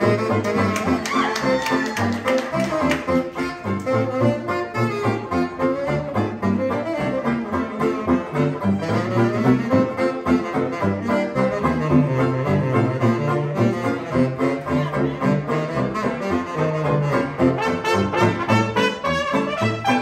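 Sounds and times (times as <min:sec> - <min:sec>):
small jazz band playing: 0:00.0 - 0:20.0
tuba bass line: 0:00.0 - 0:20.0.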